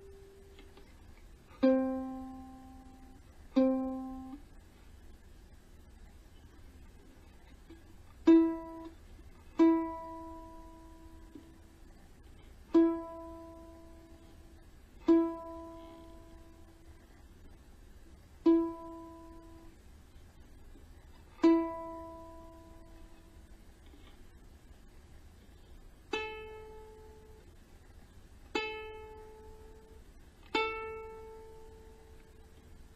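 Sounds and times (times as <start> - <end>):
ukulele string plucked: 1.6 - 4.4, 7.7 - 11.7, 12.7 - 14.2, 15.0 - 16.7, 18.4 - 19.7, 21.4 - 23.4, 28.5 - 32.4.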